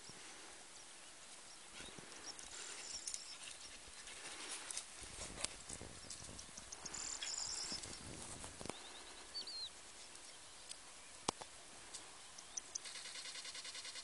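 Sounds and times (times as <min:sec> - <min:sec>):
faint open-field ambience: 0:00.0 - 0:14.0
high bird chirps: 0:06.5 - 0:08.1.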